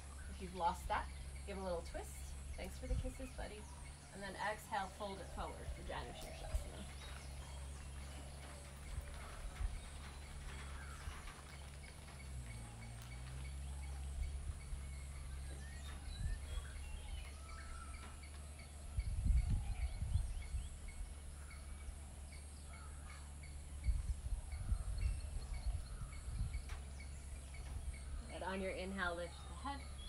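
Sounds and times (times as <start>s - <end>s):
bird chirps: 0.0s - 30.0s
low rumble: 0.0s - 30.0s.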